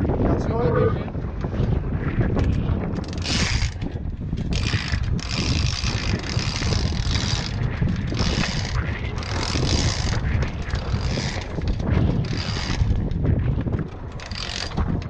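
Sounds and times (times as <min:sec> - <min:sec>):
wind rumbling on microphone: 0:00.0 - 0:15.0
rope rasping through blocks: 0:04.5 - 0:13.1, 0:14.2 - 0:15.0.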